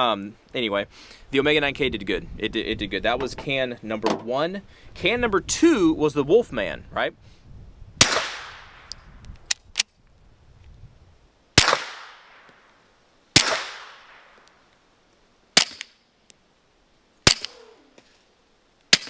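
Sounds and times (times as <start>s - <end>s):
suppressed pistol shots: 8.0s - 8.9s, 11.6s - 12.5s, 13.4s - 14.4s, 15.6s - 15.9s, 17.2s - 17.6s.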